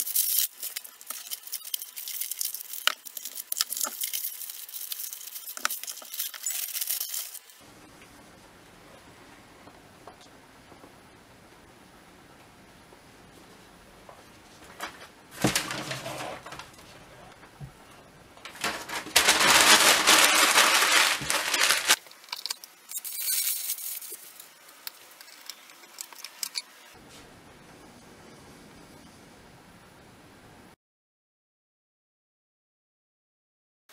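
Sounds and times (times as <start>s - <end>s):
scraping rustle: 14.8s - 17.4s, 18.5s - 26.7s.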